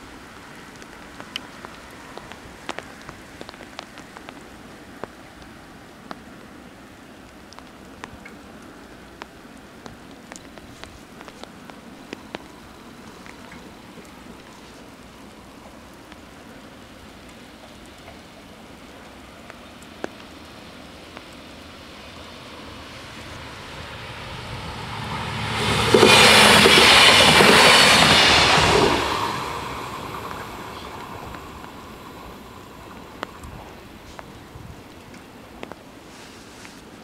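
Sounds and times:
diesel railcar passing: 21.4 - 34.7.

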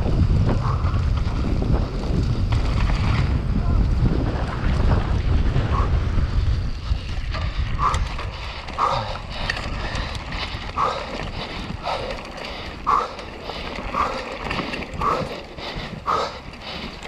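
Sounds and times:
tyres rolling on dirt: 0.0 - 17.0
wind on microphone: 0.0 - 17.0
person panting: 7.5 - 17.0.

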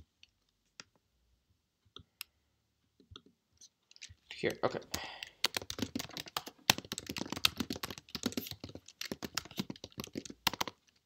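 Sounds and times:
typing on computer keyboard: 4.9 - 11.0.

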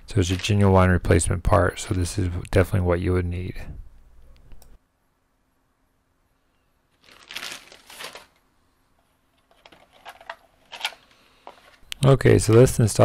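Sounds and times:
plastic packaging crinkling: 0.3 - 0.6, 6.9 - 8.4, 9.3 - 11.8.

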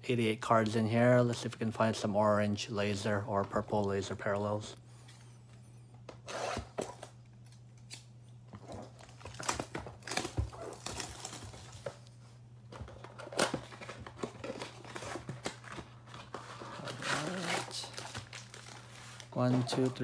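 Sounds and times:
plastic wrap tearing and crinkling: 8.6 - 12.1, 13.1 - 20.0.

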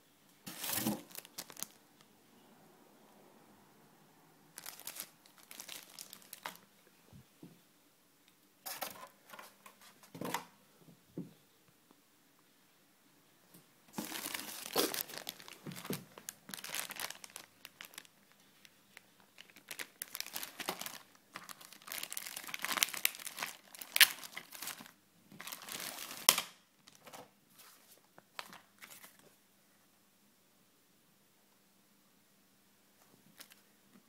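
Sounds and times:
plastic packaging crinkling: 0.5 - 1.8, 4.6 - 6.7, 13.9 - 29.2, 33.4 - 33.6.

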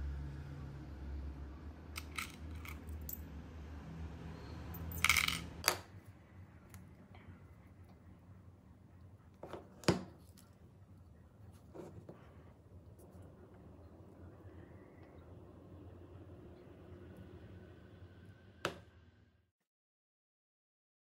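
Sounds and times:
small metal parts clicking: 2.0 - 3.2.

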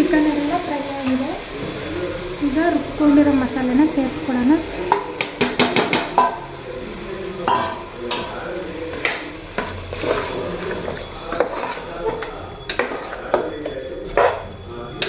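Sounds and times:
food sizzling in a pot: 0.0 - 15.0
spoon scraping and knocking pot: 4.8 - 6.5, 7.4 - 14.6.

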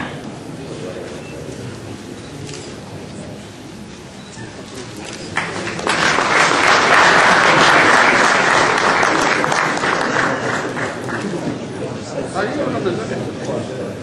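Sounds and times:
audience applauding: 5.3 - 11.6.

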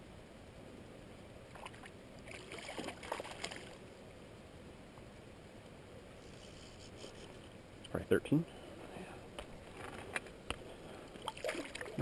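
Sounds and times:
fish splashing in water: 1.6 - 3.8, 11.2 - 12.0.

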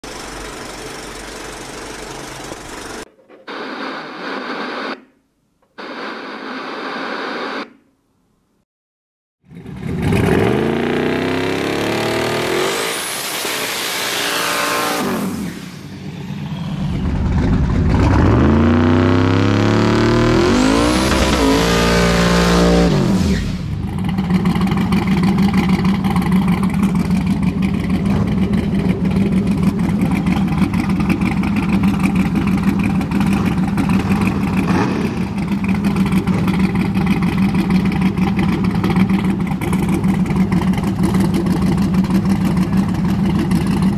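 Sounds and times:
pickup engine revving: 9.8 - 37.2.

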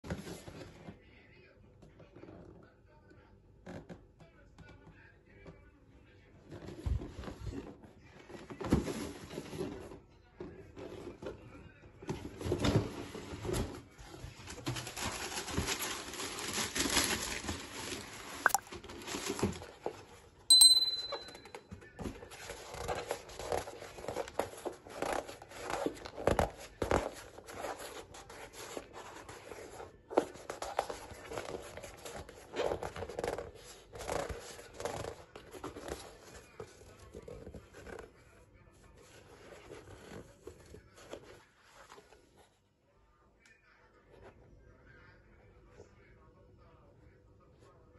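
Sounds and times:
box and tissue paper rustling: 6.6 - 10.0, 12.2 - 20.4, 22.0 - 38.3.

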